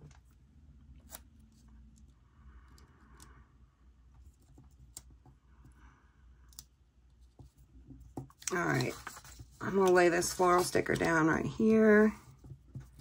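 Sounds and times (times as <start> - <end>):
soft brushing on paper: 8.7 - 13.0.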